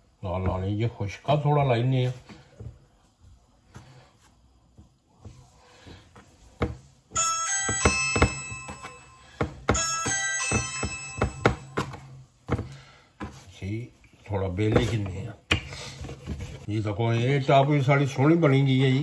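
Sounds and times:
bright chiming melody: 7.2 - 12.0.

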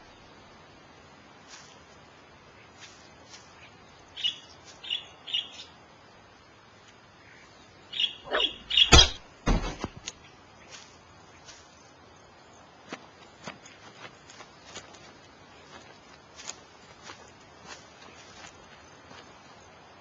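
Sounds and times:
birds chirping: 2.4 - 6.0, 7.0 - 9.2
sharp knock: 8.8 - 9.9
dull thump: 8.8 - 10.0.

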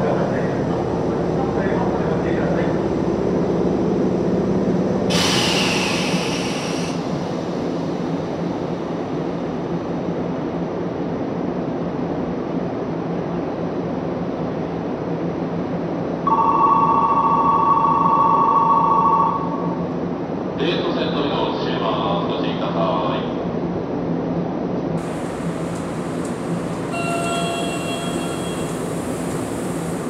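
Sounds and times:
train humming at platform: 0.0 - 30.0
short hiss: 5.1 - 7.0
departure bell ringing: 16.3 - 19.8, 26.7 - 29.0.

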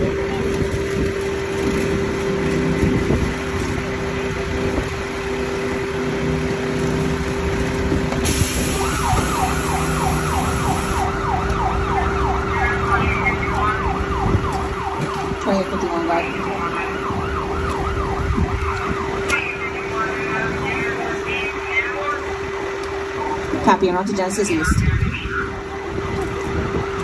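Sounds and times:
engine idling drone: 0.0 - 27.0
siren in a fast yelp: 8.6 - 27.0.

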